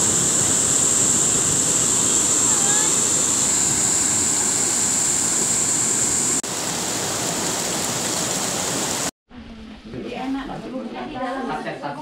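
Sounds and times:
stream rushing over boulders: 0.0s - 9.1s.

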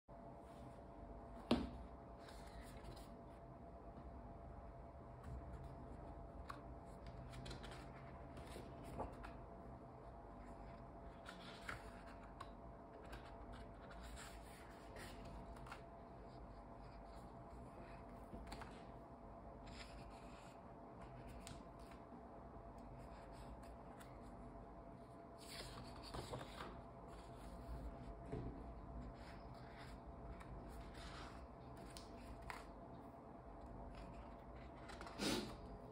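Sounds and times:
paper pages rustling: 2.2s - 3.4s, 5.2s - 9.5s, 10.3s - 19.0s, 25.3s - 33.0s, 33.8s - 35.6s.

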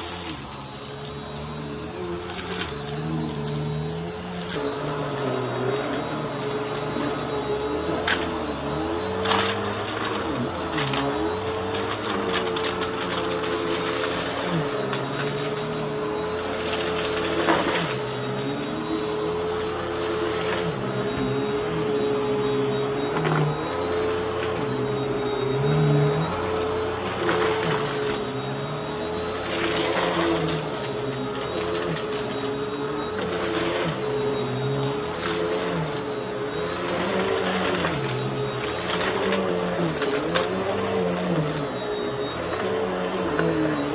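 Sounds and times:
vacuum airflow tone: 0.0s - 43.9s
vacuum cleaner motor whine: 0.0s - 43.9s.

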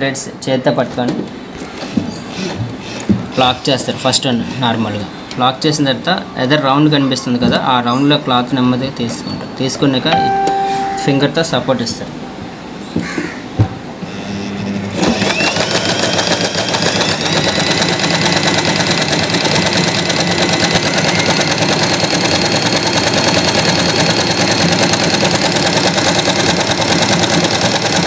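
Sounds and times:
electric sewing machine stitching: 14.8s - 28.0s.

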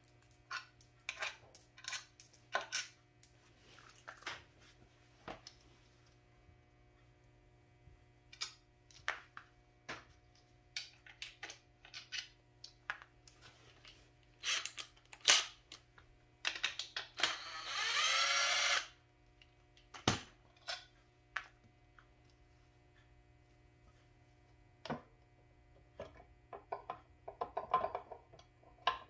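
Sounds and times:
cordless driver spinning: 17.3s - 18.8s.

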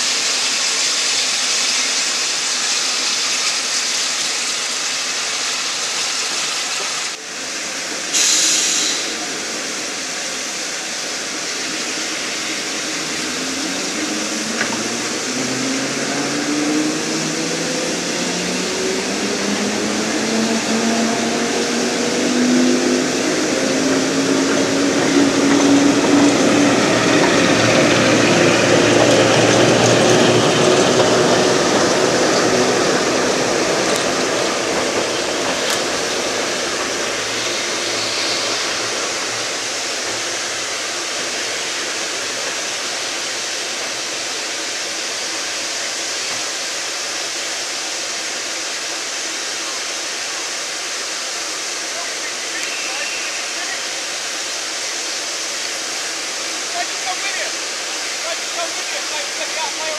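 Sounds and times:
broad rushing noise: 3.6s - 59.9s
train drone rising in pitch: 7.6s - 49.6s.

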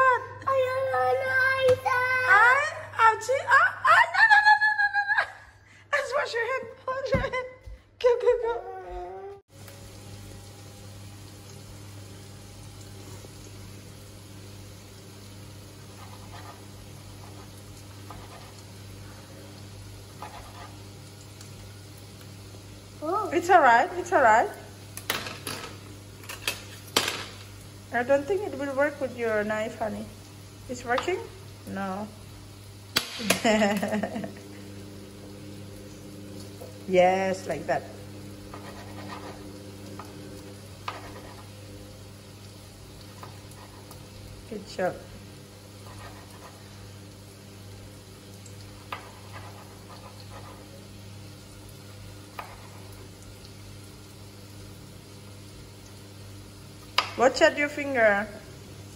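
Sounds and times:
steady low hum: 27.6s - 56.8s.

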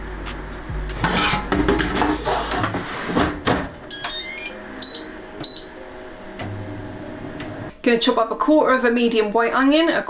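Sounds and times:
air fryer basket knocks: 1.0s - 2.1s, 3.2s - 3.8s.

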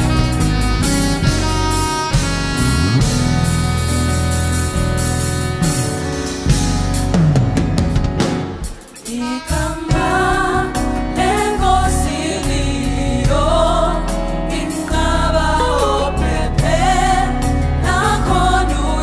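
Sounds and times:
backing band playing: 0.0s - 19.0s
choir singing: 9.0s - 19.0s.

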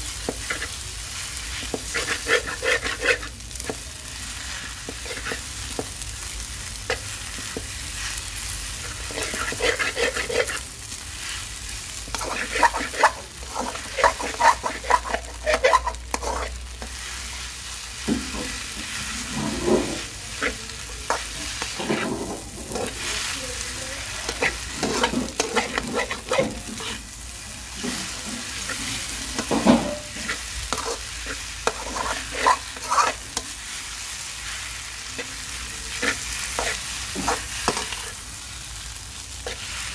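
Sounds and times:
frying sizzle: 0.0s - 39.9s
spatula scraping wok: 0.0s - 39.9s.

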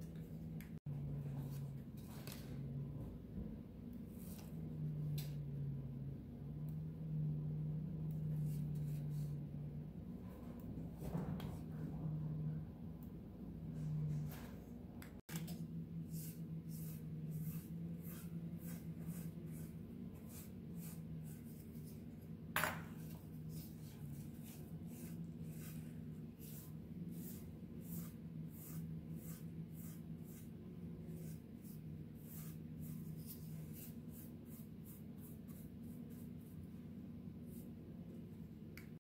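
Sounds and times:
steady low hum: 0.0s - 39.0s
pastry brush sweeping flour: 8.3s - 9.6s, 16.0s - 37.9s.

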